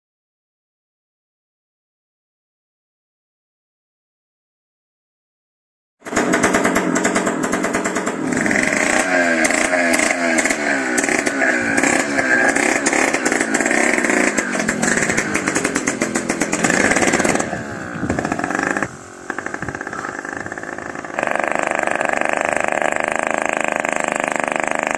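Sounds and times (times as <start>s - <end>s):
small engine revving: 6.0s - 24.9s.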